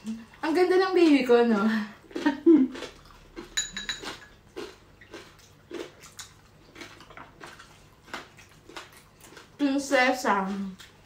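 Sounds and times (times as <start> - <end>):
people chewing food: 0.0 - 11.0.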